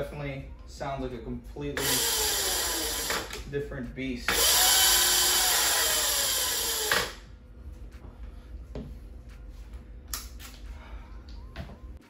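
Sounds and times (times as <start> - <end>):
electric motor and chain spinning: 1.8 - 3.4, 4.3 - 7.2.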